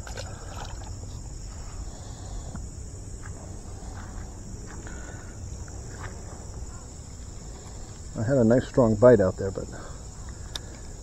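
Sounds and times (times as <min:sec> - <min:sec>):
fish splashing into water: 0:00.0 - 0:01.0
insect chorus drone: 0:00.0 - 0:11.0.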